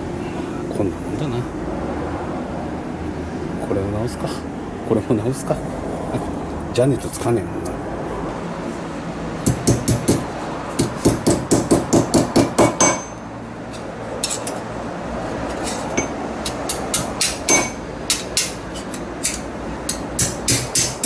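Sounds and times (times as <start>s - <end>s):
hammer tapping metal: 9.4s - 14.6s, 15.5s - 21.0s.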